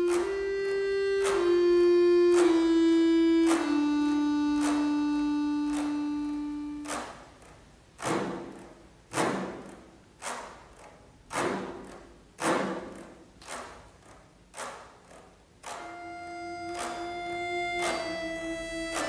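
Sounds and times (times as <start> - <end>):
accordion held chord: 0.0 - 7.3, 15.8 - 19.0
accordion percussive thumps: 0.0 - 19.0.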